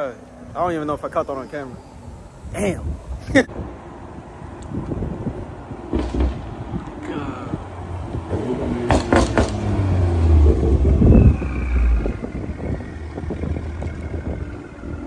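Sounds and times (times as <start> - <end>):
exhaust cracks: 5.9 - 15.0
car exhaust rumble driving past: 7.6 - 15.0
turbo whistle spooling down: 10.4 - 14.9.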